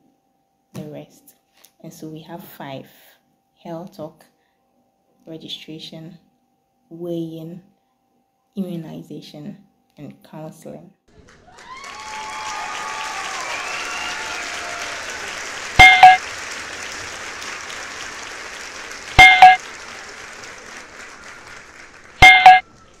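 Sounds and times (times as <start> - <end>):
crowd applause: 11.1 - 23.0
cheering: 11.2 - 23.0
electronic click and chime: 15.8 - 16.2, 19.2 - 19.6, 22.2 - 22.6.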